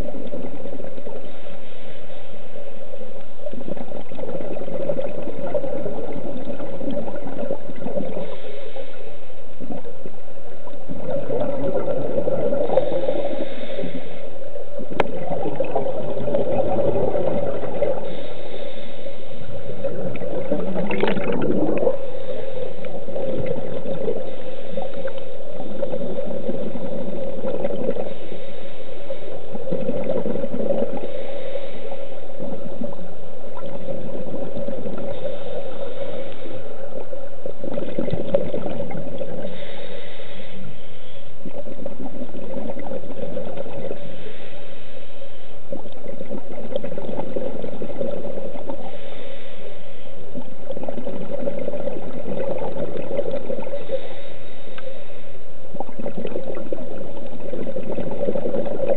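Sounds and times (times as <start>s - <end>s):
exhaled bubbles gurgling: 0.0s - 58.9s
steady hum: 0.0s - 58.9s
regulator inhalation hiss: 1.0s - 3.1s, 7.4s - 9.6s, 12.6s - 14.6s, 16.0s - 20.5s, 21.9s - 29.8s, 30.8s - 37.5s, 39.2s - 42.0s, 43.7s - 45.8s, 48.6s - 50.4s, 53.4s - 55.6s.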